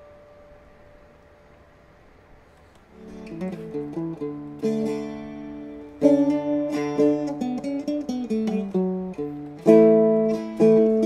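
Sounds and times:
dulcimer plucked and strummed: 2.9 - 11.0.

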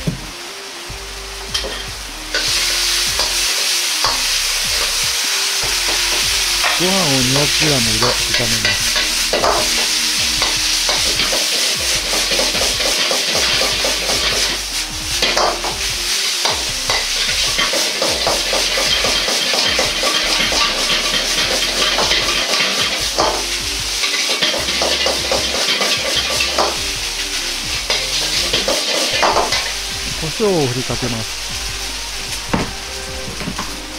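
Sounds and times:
rice sizzling in a wok: 0.2 - 33.9
metal ladle scraping a wok: 8.0 - 14.6, 16.4 - 30.0.

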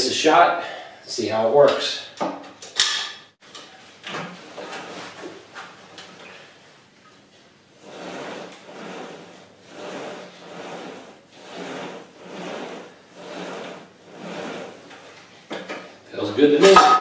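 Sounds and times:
steel cable sliding over pulleys: 7.8 - 15.3.

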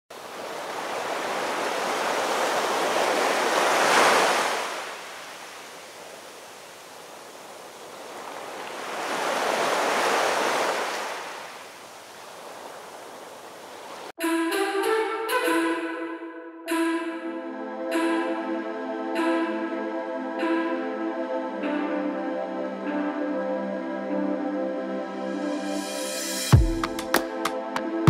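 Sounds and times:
ocean waves breaking on beach: 0.1 - 14.2.

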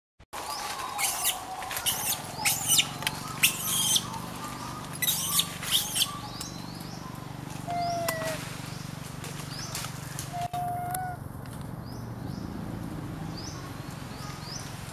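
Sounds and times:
baby monkey squeaking: 1.0 - 4.2, 4.9 - 6.3, 10.4 - 11.2.

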